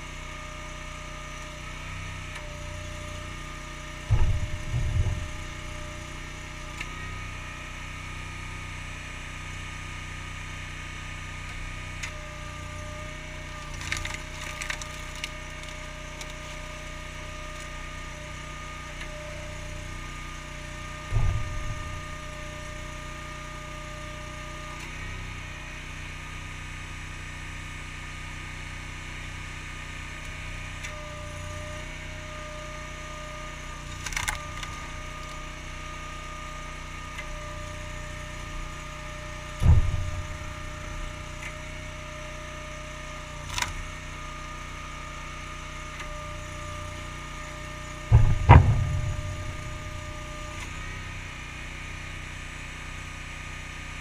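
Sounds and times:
engine whine: 0.0s - 26.7s, 28.8s - 54.0s
engine running steadily: 0.0s - 54.0s
heavy thumps: 4.1s - 6.1s, 21.1s - 22.5s, 39.5s - 41.3s, 48.0s - 50.7s
wood splitting crack: 11.5s - 18.1s, 33.6s - 44.6s, 45.6s - 51.2s.

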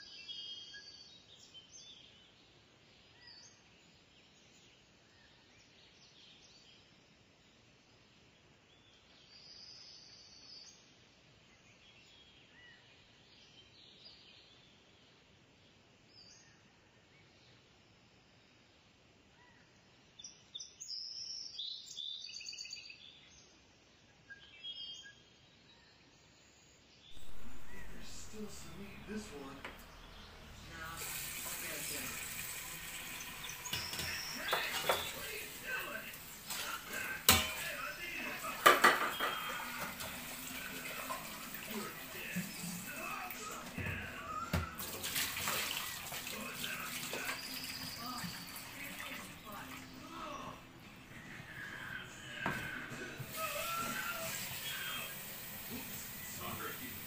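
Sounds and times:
small birds chirping: 0.0s - 18.0s, 19.3s - 57.0s
faint hiss: 27.2s - 57.0s.

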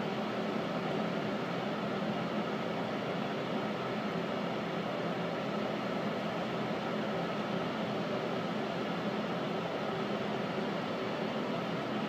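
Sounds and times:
ventilation fans hum and hiss: 0.0s - 12.0s.

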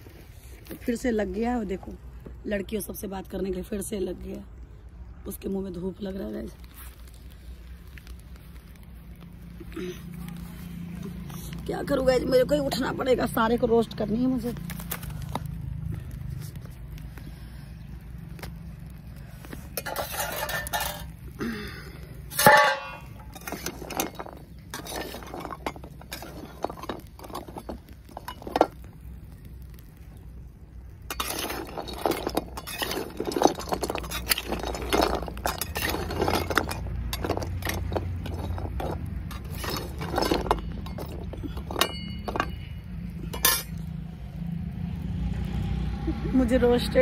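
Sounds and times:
clay pieces clattering in pan: 19.7s - 21.2s, 22.2s - 28.9s, 31.0s - 43.8s
metal spatula scraping in pan: 19.8s - 21.1s, 22.3s - 28.7s, 31.1s - 42.7s
loud metal clang: 22.4s - 23.2s.

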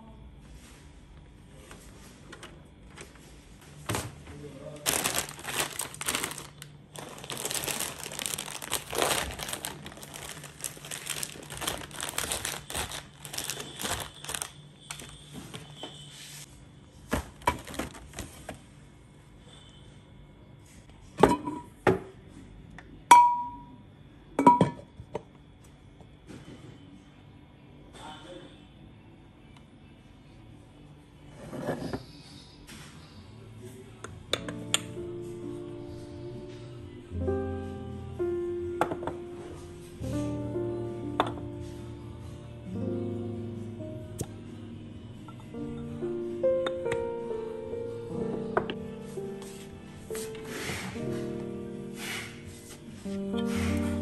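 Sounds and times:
plastic wrappers crinkling: 4.0s - 15.8s, 17.1s - 18.6s.

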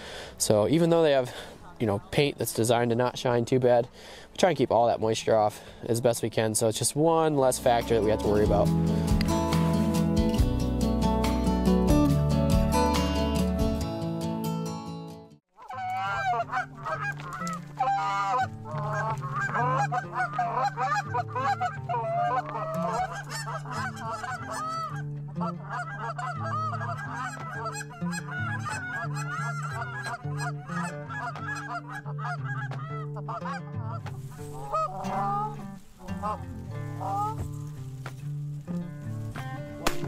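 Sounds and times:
background music with bass line: 7.4s - 15.4s
geese honking: 15.6s - 40.0s.

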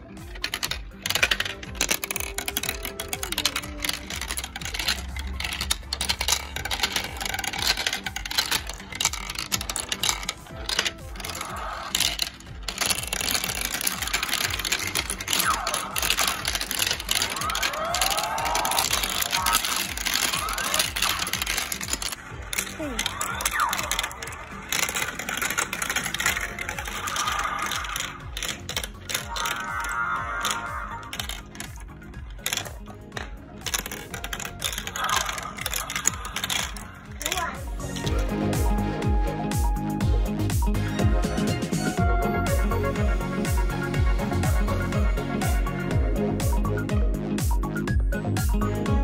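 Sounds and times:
marbles rattling on plastic track: 0.0s - 39.6s, 40.4s - 46.9s
music with repeating beat: 37.6s - 49.0s.

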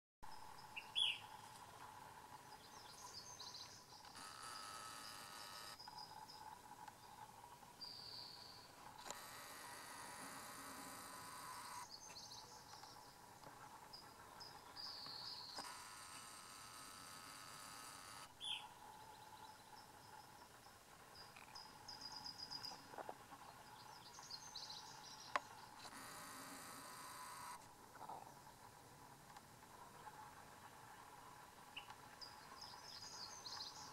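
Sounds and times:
bird chirps: 0.3s - 1.4s, 13.9s - 16.7s, 17.5s - 22.9s, 31.8s - 33.9s
faint insect trill: 0.3s - 28.3s
insects chirring: 2.3s - 8.0s.

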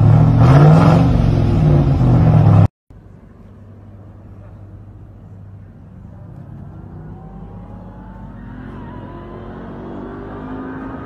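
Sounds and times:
car engine accelerating: 5.9s - 11.0s.

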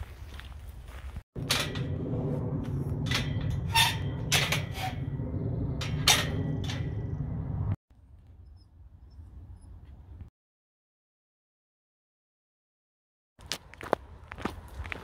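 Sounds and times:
footsteps crunching on gravel: 0.0s - 1.2s, 13.4s - 15.0s
low rumble on microphone: 1.4s - 7.8s.

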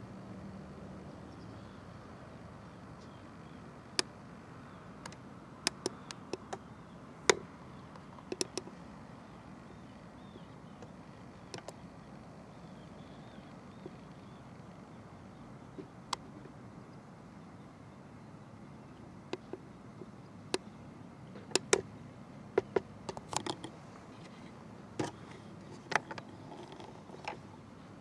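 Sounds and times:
sharp clicks and taps: 5.0s - 6.6s, 8.0s - 8.7s.

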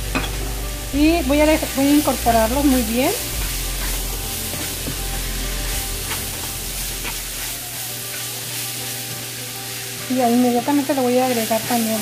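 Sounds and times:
vegetables sizzling in oil: 0.0s - 12.0s
spatula scraping a pan: 3.2s - 9.3s.

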